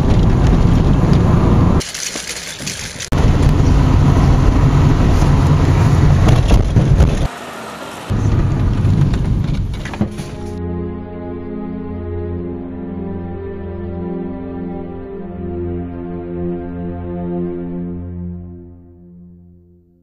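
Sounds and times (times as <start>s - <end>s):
car engine and road noise: 0.0s - 10.6s.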